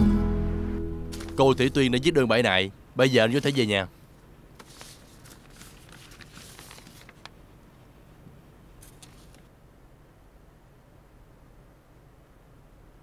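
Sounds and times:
faint rustling: 0:04.6 - 0:07.4.

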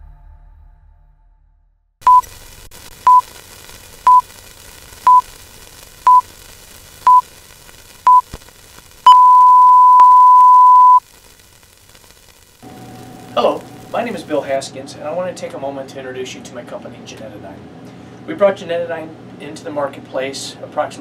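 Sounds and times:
background hiss: 0:02.0 - 0:15.5
countdown beeps: 0:09.1 - 0:11.0
long steady beep: 0:09.1 - 0:11.0.

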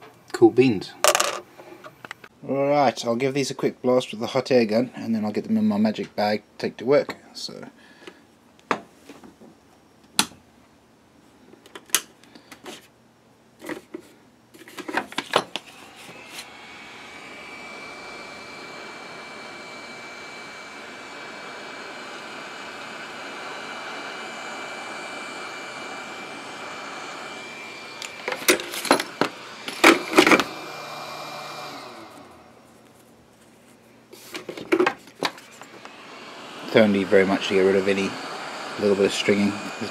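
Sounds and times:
hot air blower with fan whine: 0:14.6 - 0:33.1, 0:34.1 - 0:39.9.

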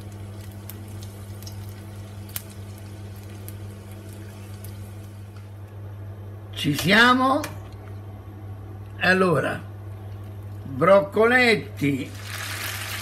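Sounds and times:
garlic sizzling in oil: 0:00.0 - 0:05.4, 0:11.9 - 0:13.0
steady low hum: 0:00.0 - 0:12.2
oil pops and crackles: 0:00.3 - 0:05.4.

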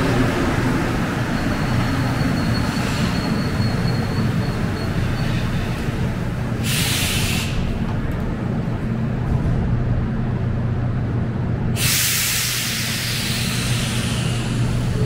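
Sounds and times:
metro train humming: 0:00.0 - 0:15.0
compressed air hiss: 0:06.6 - 0:07.7, 0:11.8 - 0:14.9.

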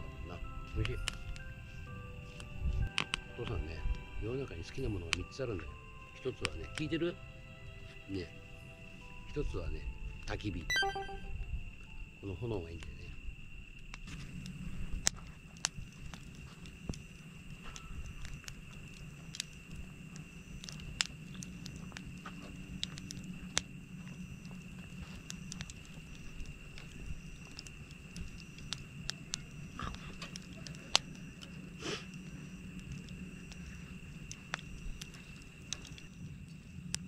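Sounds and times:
campfire crackling and popping: 0:00.6 - 0:05.8, 0:06.4 - 0:06.9, 0:13.8 - 0:37.0.

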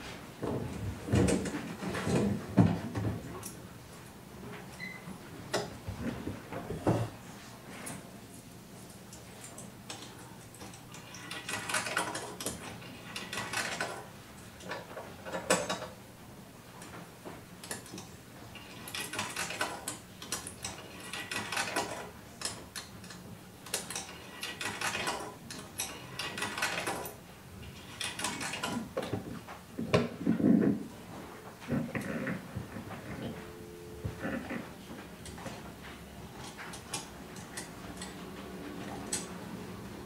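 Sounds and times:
steady low hum: 0:29.2 - 0:40.0.

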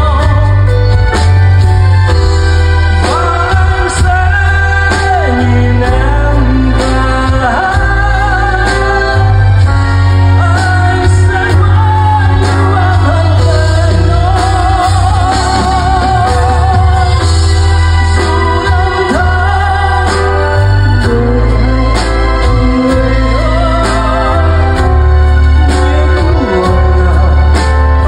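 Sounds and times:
heavy steady bass: 0:00.0 - 0:28.0
live pop ballad band: 0:00.0 - 0:28.0.

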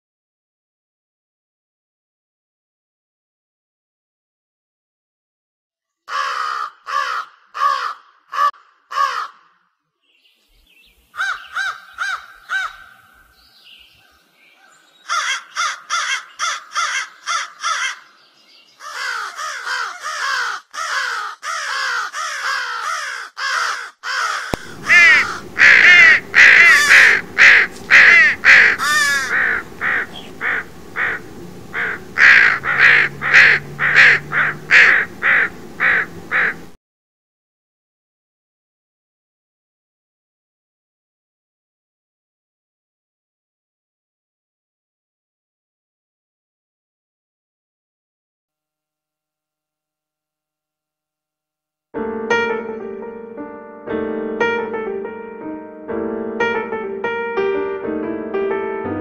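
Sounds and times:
crows cawing: 0:06.1 - 0:09.8, 0:11.2 - 0:13.2, 0:14.6 - 0:18.2, 0:18.8 - 0:36.7
low steady rumble: 0:24.6 - 0:36.8.

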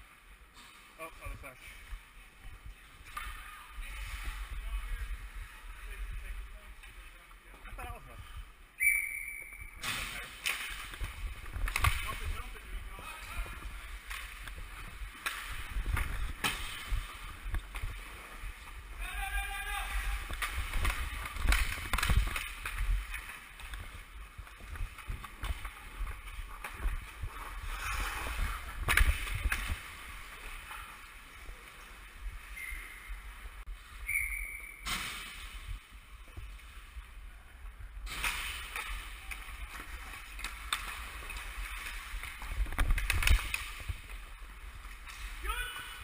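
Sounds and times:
hockey sticks and puck clacking: 0:03.0 - 0:04.0, 0:09.8 - 0:32.0, 0:38.1 - 0:46.0
skate blades scraping ice: 0:19.8 - 0:31.8.

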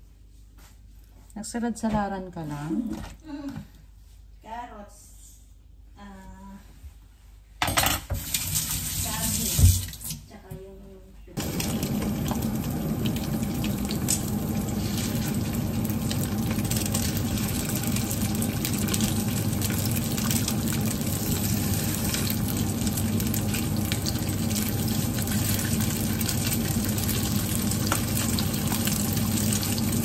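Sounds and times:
tofu sizzling in hot oil: 0:11.4 - 0:30.0.

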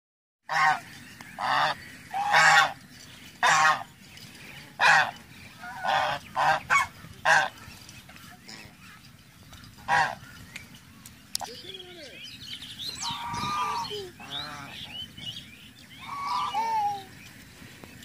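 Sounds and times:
geese honking: 0:00.5 - 0:10.5, 0:12.9 - 0:17.1.

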